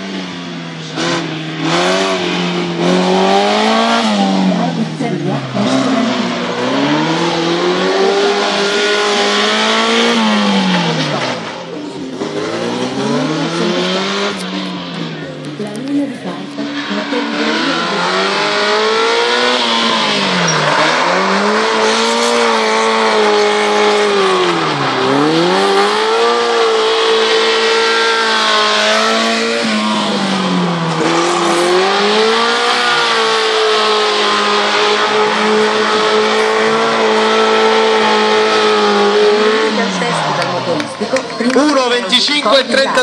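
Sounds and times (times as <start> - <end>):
car engine revving hard: 0.0 - 43.0
tyres squealing: 1.1 - 43.0.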